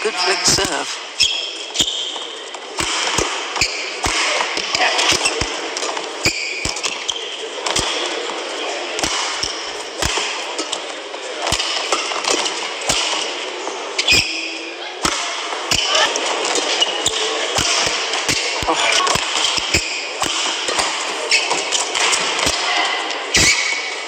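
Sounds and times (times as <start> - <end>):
arena crowd noise: 0.0 - 24.0
shoe squeaks on court: 1.2 - 2.3, 3.6 - 3.9, 23.3 - 24.0
racket striking shuttlecock: 16.5 - 22.7.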